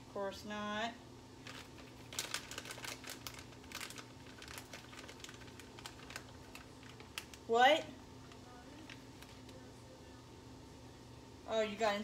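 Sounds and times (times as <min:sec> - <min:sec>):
faint steady hum: 0:00.0 - 0:12.0
plastic bag crinkling: 0:01.4 - 0:07.5.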